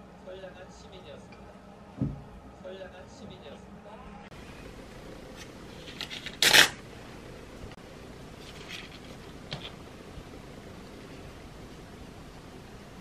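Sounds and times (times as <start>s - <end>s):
paper rustling: 5.3s - 6.8s, 8.4s - 9.8s
paper crinkling: 5.4s - 6.8s, 8.4s - 9.8s
paper ripping: 5.4s - 6.8s.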